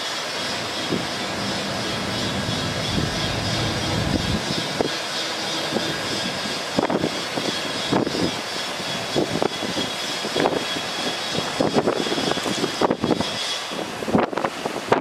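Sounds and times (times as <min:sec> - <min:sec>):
steady mechanical noise: 0:00.0 - 0:14.4
diesel engine rumble: 0:00.4 - 0:09.7.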